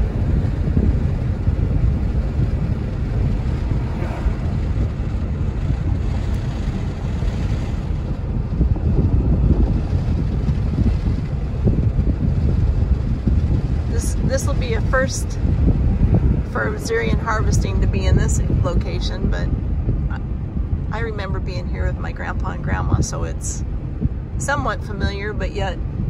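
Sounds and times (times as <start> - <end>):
wind and road noise in car: 0.0 - 26.0.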